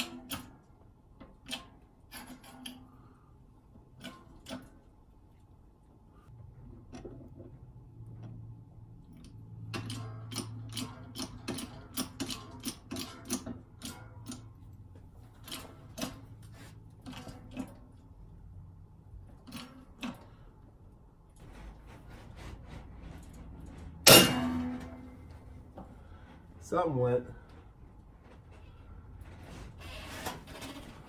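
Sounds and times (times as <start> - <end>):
hydraulic press clicks and creaks: 0.0 - 3.1, 28.3 - 31.0
steady low hum: 0.0 - 31.0.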